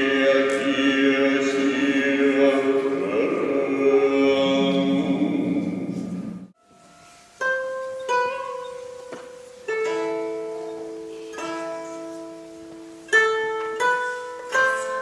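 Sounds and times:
person chanting: 0.0s - 6.6s, 13.8s - 15.0s
plucked string instrument: 0.0s - 15.0s.

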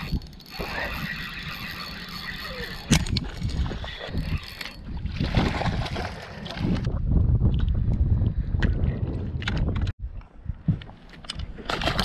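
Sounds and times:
fishing reel cranking: 0.0s - 4.9s.

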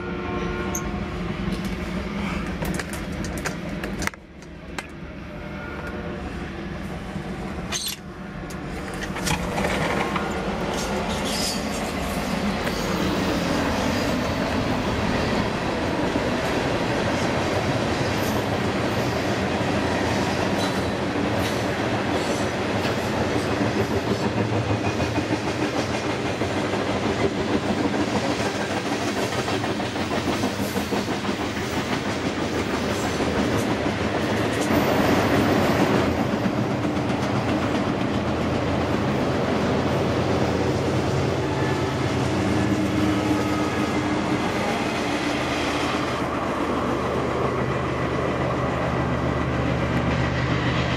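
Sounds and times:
train wheels rumbling on rails: 0.0s - 50.9s
wheels clicking over rail joints: 2.4s - 5.0s, 7.7s - 12.8s.

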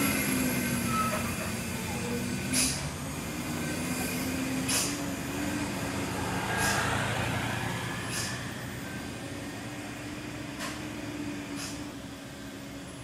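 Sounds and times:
short sharp hisses: 6.4s - 7.1s, 8.1s - 8.5s.

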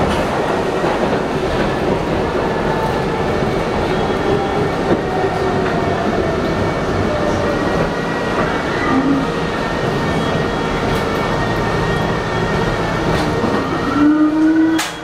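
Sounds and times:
subway wheels rumbling on rails: 0.0s - 15.0s.

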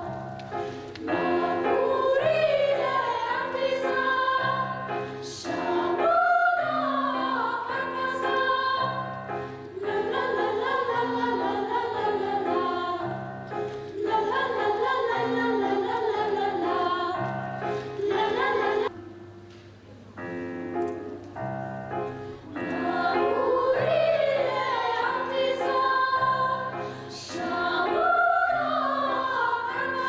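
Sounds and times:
choir singing slow held notes: 0.0s - 19.0s, 22.1s - 30.0s.

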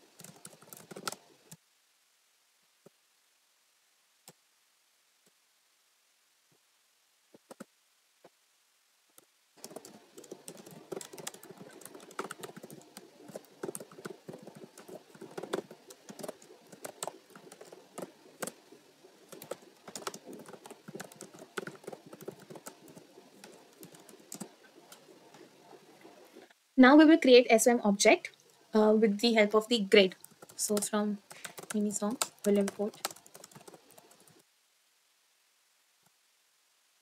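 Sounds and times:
typing on keyboard: 0.2s - 1.6s, 9.6s - 25.2s, 30.1s - 34.4s.

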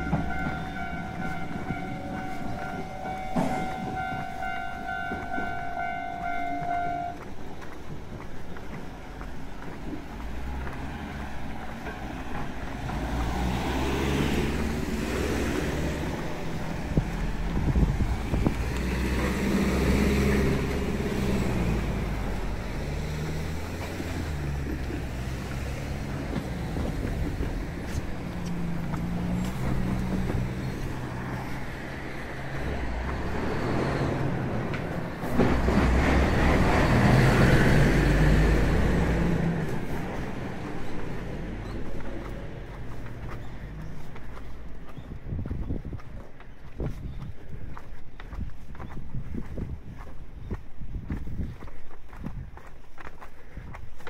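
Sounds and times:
cars passing close by: 0.0s - 46.5s
loud vehicle passing: 10.2s - 45.0s.

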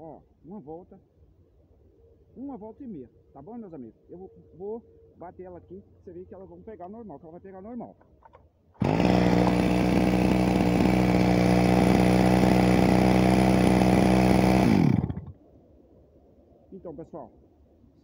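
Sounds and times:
chainsaw engine idling: 8.8s - 15.4s
chainsaw engine winding down: 8.8s - 15.4s.

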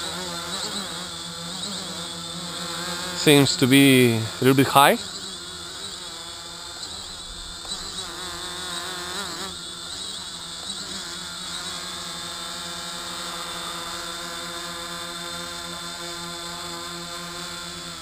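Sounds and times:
drone motors buzzing: 4.2s - 14.7s.

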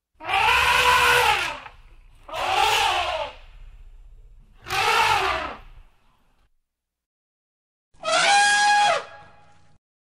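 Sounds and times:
elephant trumpeting: 0.2s - 1.7s, 2.3s - 3.4s, 4.6s - 5.7s
low steady noise: 1.2s - 6.6s.

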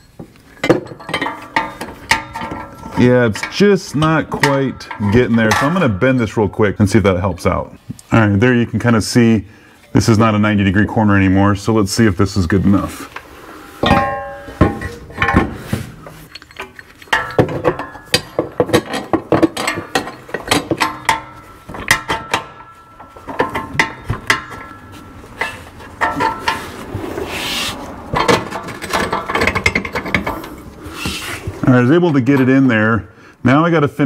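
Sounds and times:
metal part knocking and scraping: 0.0s - 6.4s, 13.1s - 31.2s.

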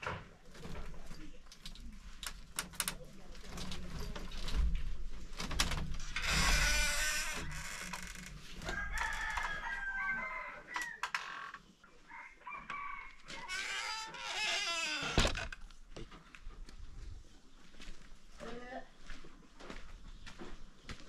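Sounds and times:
rooster crowing: 8.6s - 11.1s, 12.0s - 14.4s.

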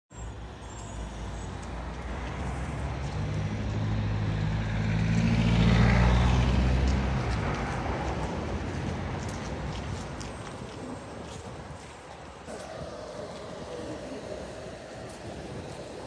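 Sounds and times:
traffic noise: 0.1s - 16.0s
vehicle driving past: 2.2s - 8.9s, 12.5s - 16.0s.

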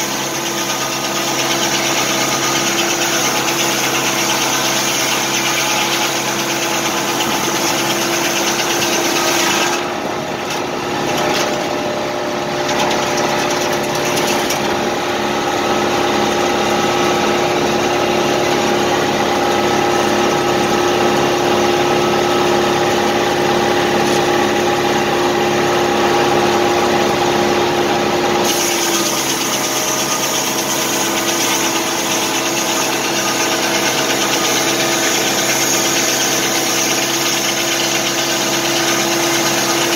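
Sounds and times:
tractor engine running: 9.8s - 28.1s.

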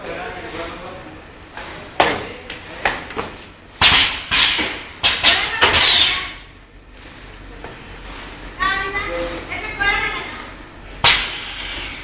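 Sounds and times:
machine hissing and scraping: 7.9s - 12.0s.

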